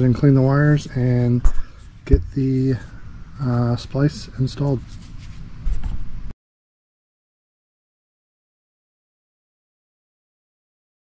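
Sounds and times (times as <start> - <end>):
low handling thumps: 2.0 - 2.7.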